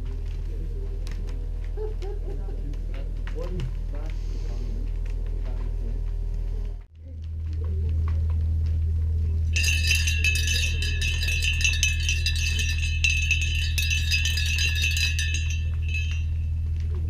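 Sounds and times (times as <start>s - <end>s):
high ringing tones: 9.6s - 16.8s.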